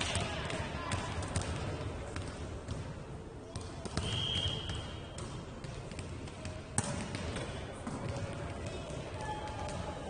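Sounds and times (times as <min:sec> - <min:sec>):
referee's whistle: 0:04.0 - 0:05.0.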